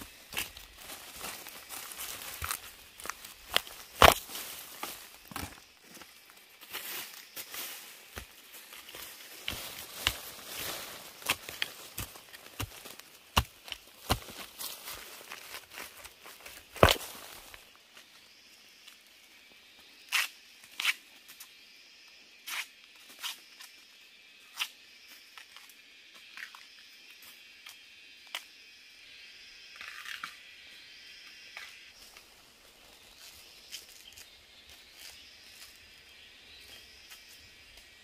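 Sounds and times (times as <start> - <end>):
dry vegetation snapping: 0.3 - 5.6, 16.5 - 17.6.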